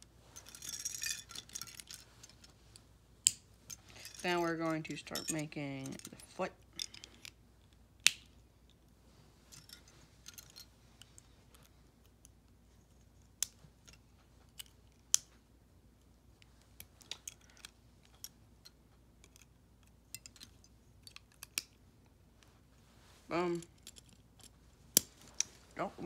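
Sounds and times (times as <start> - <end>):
plastic parts clicking together: 19.2 - 21.8.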